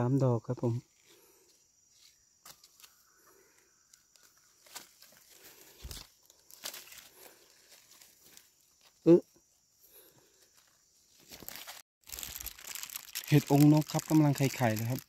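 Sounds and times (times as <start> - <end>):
dry leaves rustling and crackling: 4.1 - 9.0, 11.1 - 15.0.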